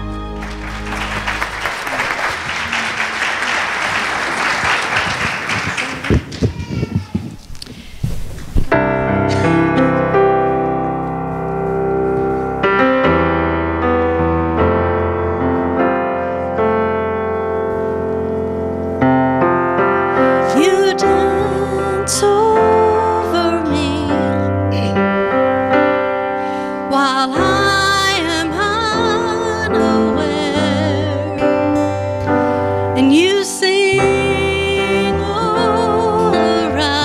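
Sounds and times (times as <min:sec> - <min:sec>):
piano playing slow chords: 0:00.0 - 0:03.4, 0:08.7 - 0:37.0
congregation applauding: 0:00.0 - 0:07.1.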